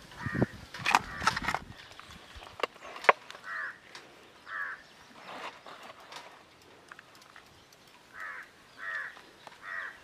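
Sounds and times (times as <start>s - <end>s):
crow cawing: 3.4s - 4.9s, 8.1s - 10.0s.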